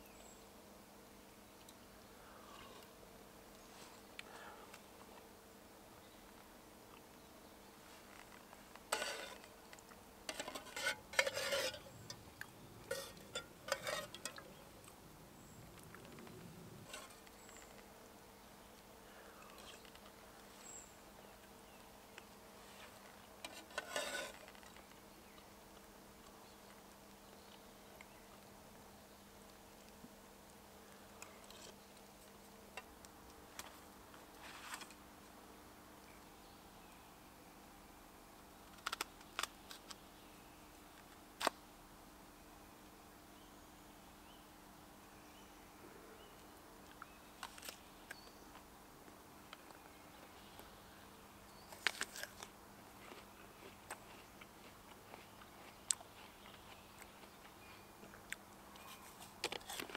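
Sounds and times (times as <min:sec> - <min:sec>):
spoon scraping metal tin: 0:08.9 - 0:09.5, 0:10.3 - 0:12.2, 0:12.8 - 0:14.6, 0:23.4 - 0:24.4.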